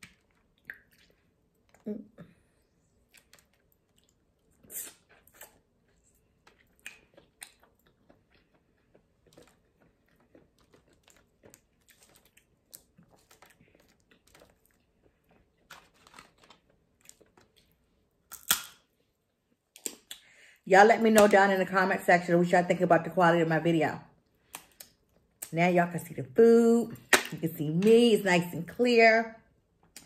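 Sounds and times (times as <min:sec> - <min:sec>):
close chewing: 0:03.0 - 0:17.8
crab shells cracking: 0:18.3 - 0:18.8.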